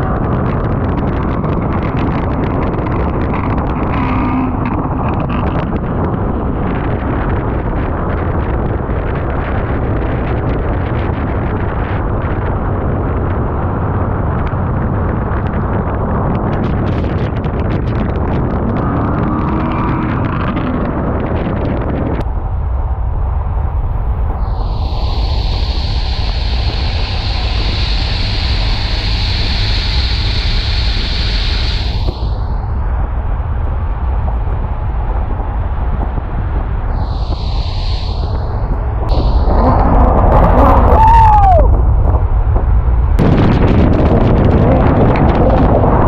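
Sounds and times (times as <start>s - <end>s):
exhaust cracks: 0.0s - 22.3s
car exhaust: 0.0s - 46.0s
wet road and wind noise: 0.0s - 46.0s
tyres hissing on wet pavement: 24.4s - 32.6s, 36.9s - 39.8s.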